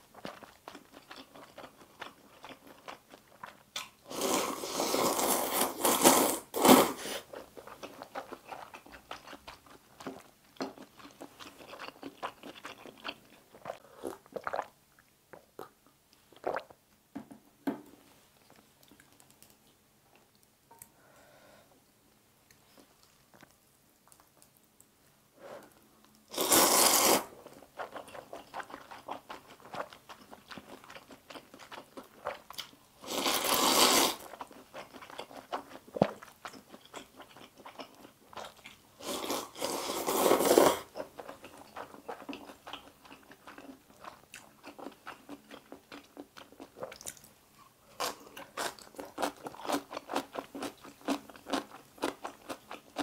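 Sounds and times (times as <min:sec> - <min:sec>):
noodles being slurped: 0:04.1 - 0:07.4, 0:26.3 - 0:29.9, 0:33.0 - 0:34.6, 0:39.0 - 0:42.6.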